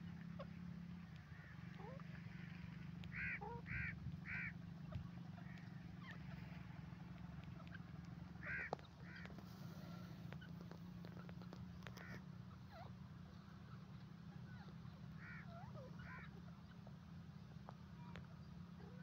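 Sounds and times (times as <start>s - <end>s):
francolin calls: 1.2s - 13.8s, 14.4s - 16.9s.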